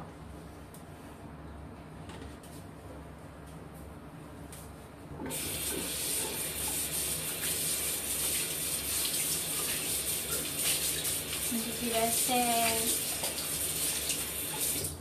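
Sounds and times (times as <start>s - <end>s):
water running into sink: 5.3s - 15.0s.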